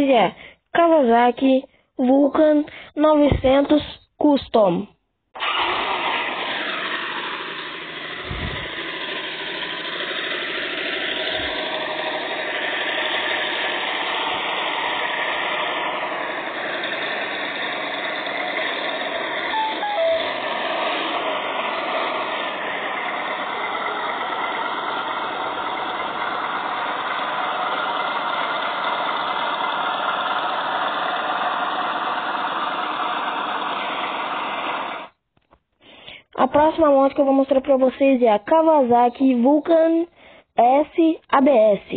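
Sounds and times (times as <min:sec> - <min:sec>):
motorcycle engine running: 0:06.0 - 0:34.9.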